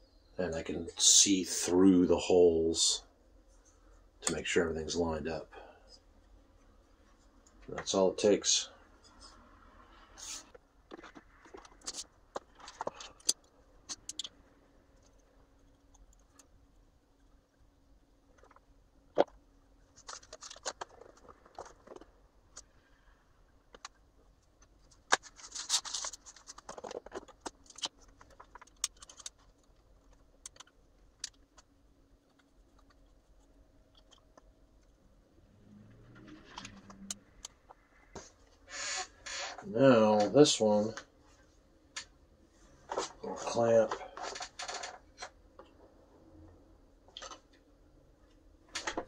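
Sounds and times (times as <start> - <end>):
plastic parts scraping and rattling: 10.3 - 14.3, 18.3 - 22.8, 23.7 - 35.0, 35.9 - 40.3, 42.8 - 45.8
plastic parts clicking and knocking: 10.9 - 14.4, 20.0 - 22.8, 23.7 - 35.0.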